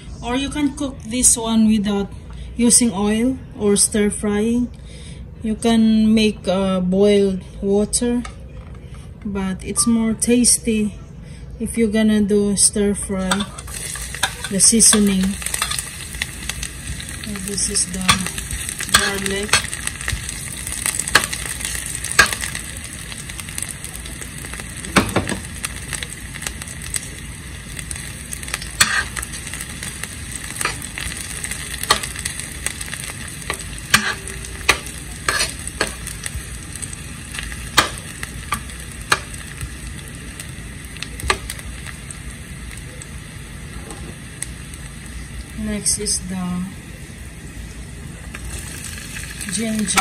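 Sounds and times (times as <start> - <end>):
spoon scraping metal pan: 13.2 - 15.9, 17.8 - 19.7, 28.8 - 29.2, 33.9 - 36.0
garlic sizzling in oil: 13.2 - 50.0.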